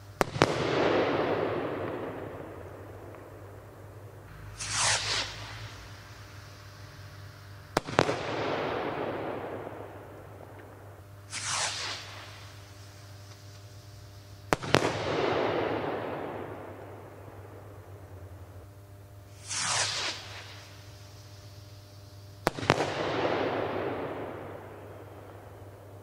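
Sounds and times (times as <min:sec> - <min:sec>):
firework bangs with echoing rumble: 0:00.0 - 0:03.7, 0:04.3 - 0:06.8, 0:07.4 - 0:13.4, 0:14.4 - 0:18.1, 0:19.3 - 0:21.3, 0:22.4 - 0:25.8
short falling hiss: 0:04.3 - 0:08.5, 0:11.3 - 0:14.6, 0:19.3 - 0:23.4.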